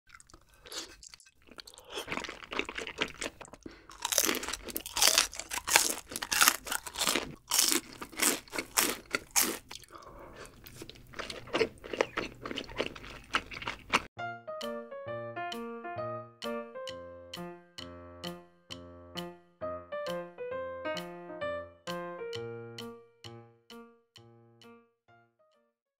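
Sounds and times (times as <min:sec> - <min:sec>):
crunching and chewing food: 0:00.1 - 0:14.1
soft piano music: 0:14.2 - 0:25.7.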